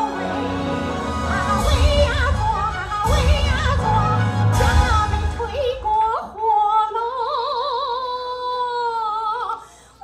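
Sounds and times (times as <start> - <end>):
light backing music: 0.0 - 6.3.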